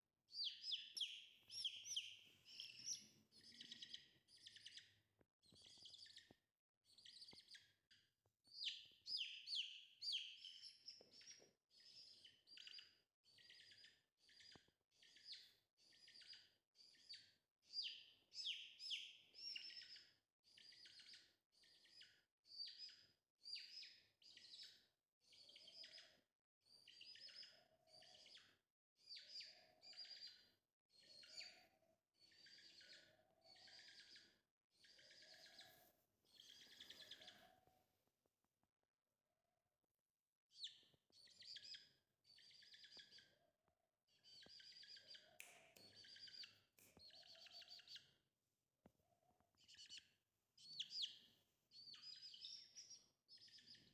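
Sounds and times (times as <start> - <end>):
chick peeping: 0.4 - 4.8, 44.2 - 48.0.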